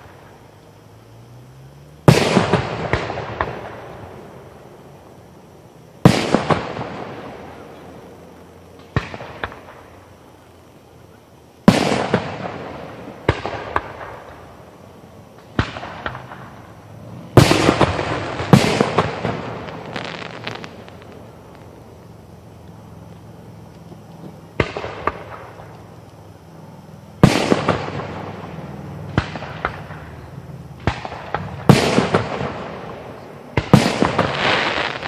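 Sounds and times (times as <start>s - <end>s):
firework pops and crackles: 2.0s - 3.8s, 6.0s - 7.9s, 8.7s - 10.2s, 11.6s - 14.5s, 15.3s - 16.6s, 17.3s - 21.8s, 22.6s - 26.2s, 27.2s - 28.3s, 29.1s - 30.2s, 30.8s - 35.0s
fireworks bangs: 2.0s - 4.6s, 6.0s - 8.2s, 8.8s - 10.2s, 11.6s - 14.7s, 15.3s - 22.3s, 24.0s - 25.8s, 27.2s - 35.0s.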